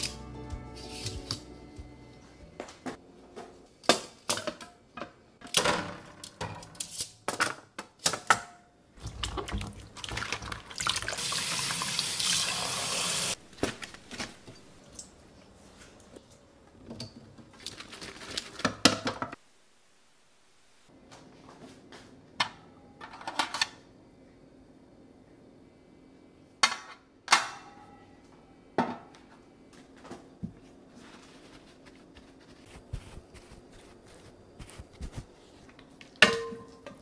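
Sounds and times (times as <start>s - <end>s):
tap water running: 9.0s - 13.4s.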